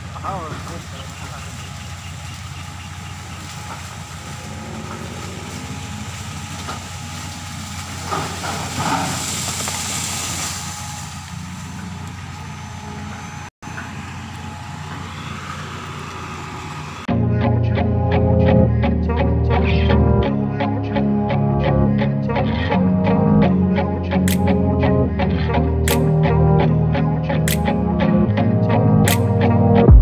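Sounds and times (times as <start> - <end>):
excavator diesel engine running: 0.0 - 19.0.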